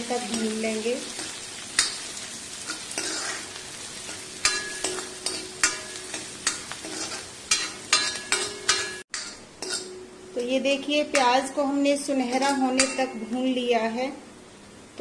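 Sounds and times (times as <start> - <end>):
onions sizzling in hot oil: 0.0 - 14.2
metal ladle scraping a pan: 2.6 - 10.0.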